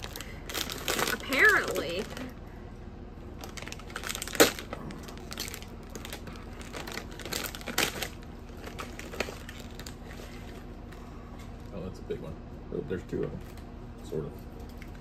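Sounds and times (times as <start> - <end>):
plastic chip bag crackling: 0.0 - 2.3, 3.4 - 10.7.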